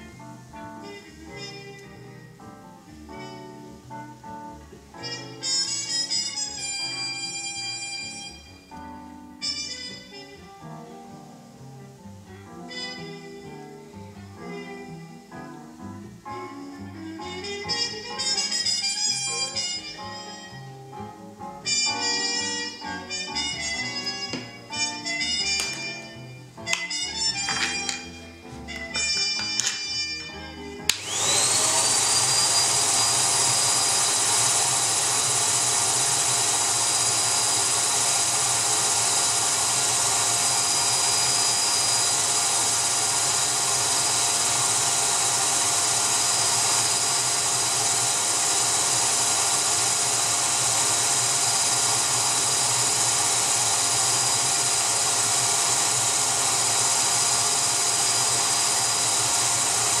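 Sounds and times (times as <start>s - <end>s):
vacuum motor whining: 5.0s - 10.2s, 17.2s - 20.5s, 28.7s - 60.0s.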